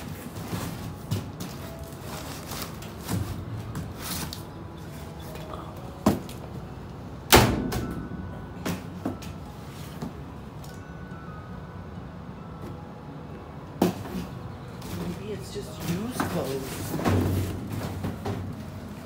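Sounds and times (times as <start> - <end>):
rustling of boxes and clothes: 0.0 - 7.2, 7.8 - 10.9, 12.6 - 19.0
sharp bang in dumpster: 7.3 - 8.2
ringing metal bang: 7.3 - 8.9.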